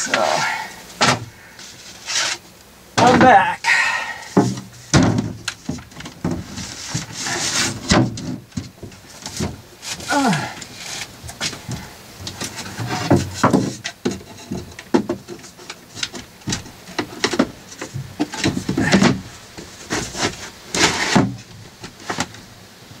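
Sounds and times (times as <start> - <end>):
panel knocking and scraping: 4.4 - 9.6.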